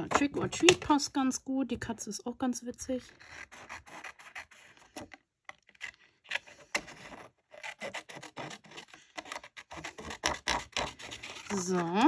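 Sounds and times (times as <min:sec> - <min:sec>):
craft paper rubbing and scraping: 0:03.0 - 0:12.0.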